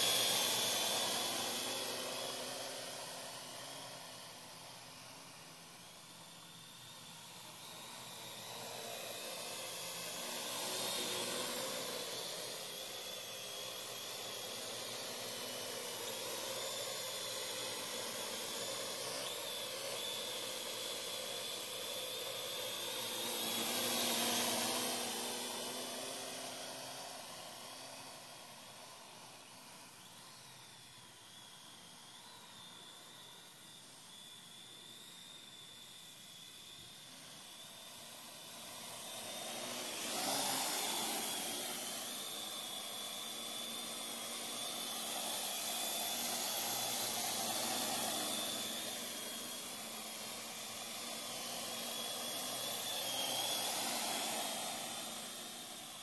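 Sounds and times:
drone propellers buzzing: 0.0 - 30.2, 36.6 - 56.0.

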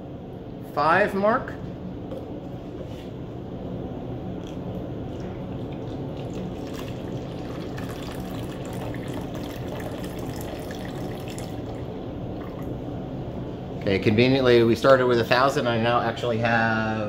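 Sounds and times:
water pouring into plastic bottle: 5.2 - 11.8.

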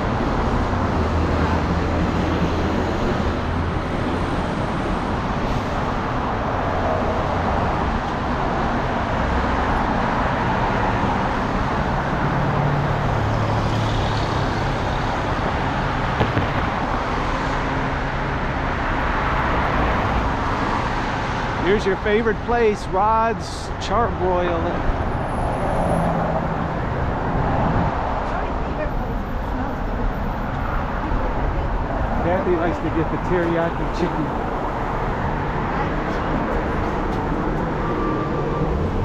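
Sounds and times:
cars passing: 0.0 - 39.0.

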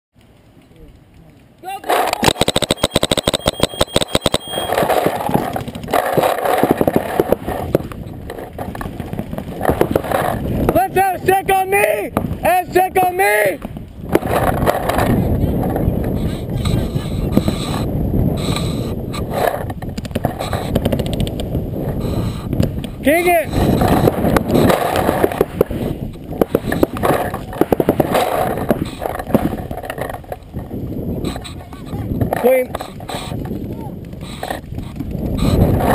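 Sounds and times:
steady rushing noise: 0.2 - 35.9
paintball markers popping: 1.9 - 10.5, 15.8 - 30.6
camera handling knocks and rattles: 2.5 - 10.8, 19.1 - 21.6, 23.7 - 35.4.

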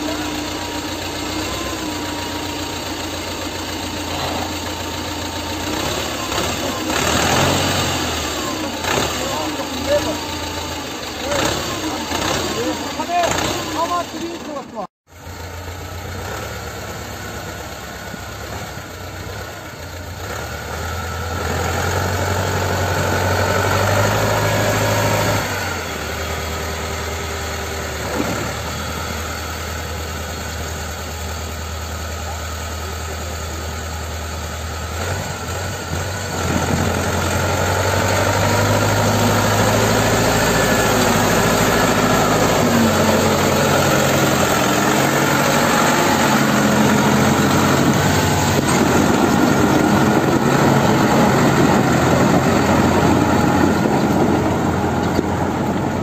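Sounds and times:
tractor diesel engine revving: 0.0 - 56.0.

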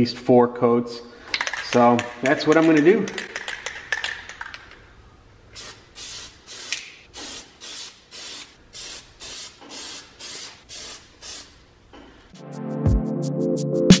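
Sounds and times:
aerosol spray spurts: 5.6 - 11.5.

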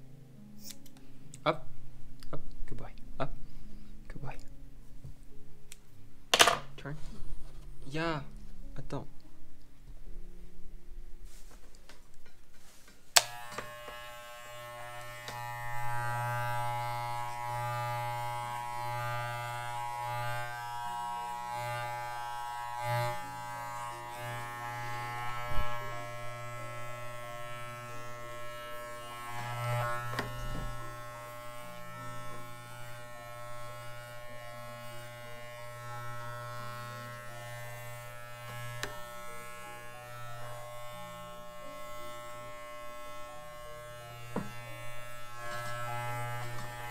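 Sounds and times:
electric hair clippers buzzing: 13.1 - 46.9.

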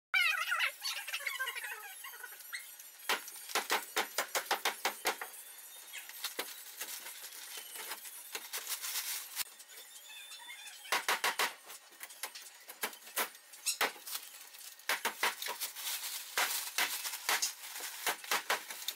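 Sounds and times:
scraping rustle: 6.2 - 9.5, 15.4 - 18.9.

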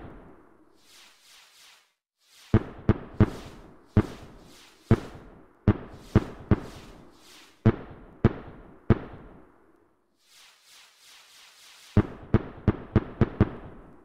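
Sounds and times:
faint hiss: 0.7 - 7.7, 10.2 - 12.4
fireworks bangs: 2.3 - 9.4, 10.2 - 13.9.

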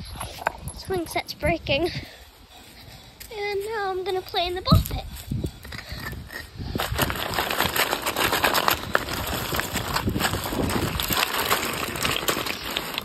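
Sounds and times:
plastic balls clattering: 6.0 - 13.0
bare feet wading through balls: 6.7 - 13.0.

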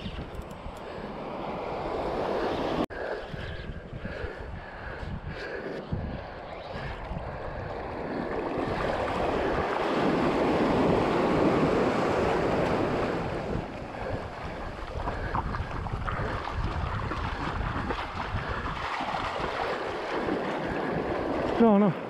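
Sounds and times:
wind buffeting microphone: 0.0 - 21.6
surf surging over rocks: 8.2 - 15.1, 18.8 - 22.0.

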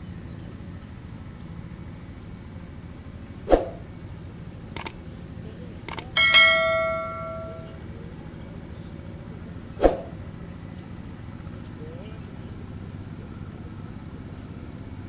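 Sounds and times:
swoosh: 3.5 - 3.8, 9.8 - 10.2
mouse clicks: 4.8 - 5.0
notification bell ding: 6.0 - 7.8.

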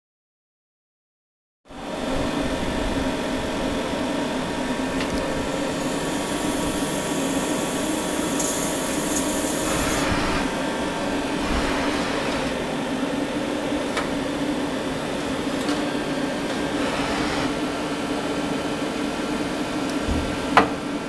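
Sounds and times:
lathe mechanical hum: 1.8 - 21.0
high hiss: 5.7 - 10.4.

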